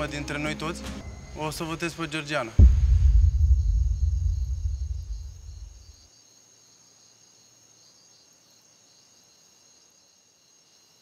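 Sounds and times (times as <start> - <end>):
night insects chirring: 1.0 - 11.0
deep booming rumble: 2.6 - 5.9.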